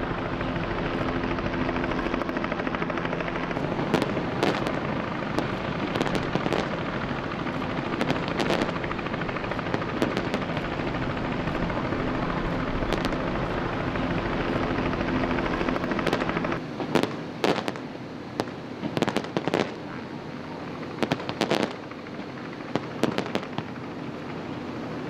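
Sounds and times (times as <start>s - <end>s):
motor drone: 0.0s - 17.6s.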